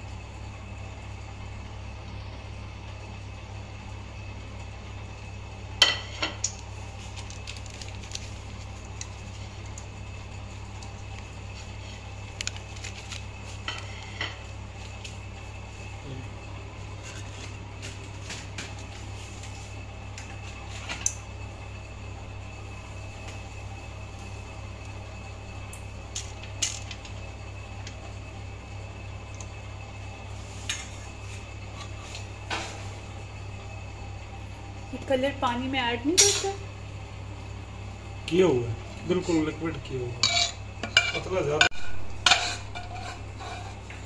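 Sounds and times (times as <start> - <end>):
steady low hum: 0.0 - 44.0
utensils clinking against dishes: 36.2 - 36.6.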